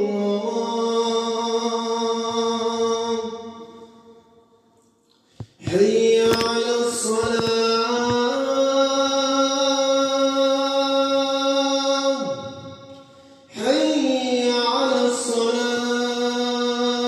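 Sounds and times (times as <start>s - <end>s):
man chanting call to prayer: 0.0s - 4.1s, 5.5s - 17.0s.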